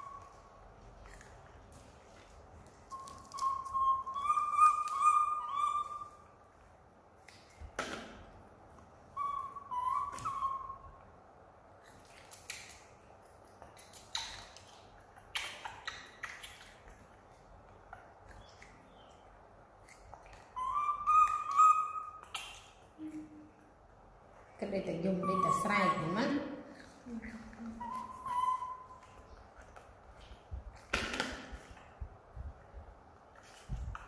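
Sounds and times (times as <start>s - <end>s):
monkeys eating clicks and smacks: 0.0s - 10.8s, 11.8s - 23.8s, 26.6s - 32.5s, 33.1s - 34.0s
baby monkey coo calls: 2.9s - 6.3s, 9.2s - 11.0s, 20.5s - 22.4s, 25.1s - 26.3s, 27.6s - 29.2s.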